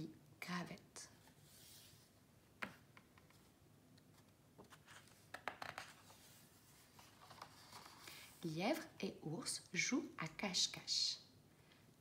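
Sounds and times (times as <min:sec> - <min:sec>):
paper rustling: 0:04.1 - 0:08.3.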